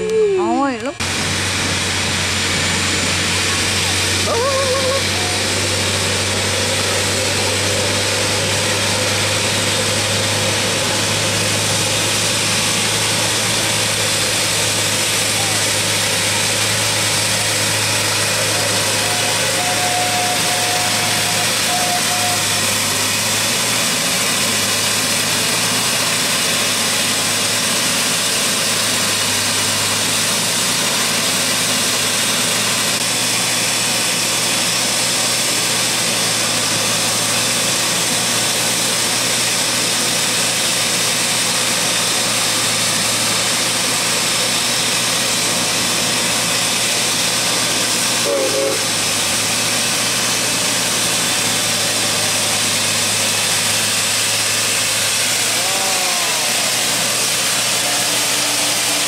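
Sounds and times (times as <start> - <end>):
machine engine idling: 0.0 - 59.0
brief high squeak: 19.0 - 22.8.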